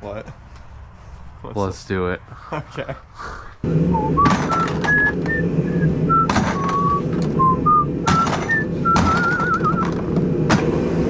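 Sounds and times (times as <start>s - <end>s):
vehicle drone: 3.6s - 11.0s
person whistling a tune: 4.0s - 10.0s.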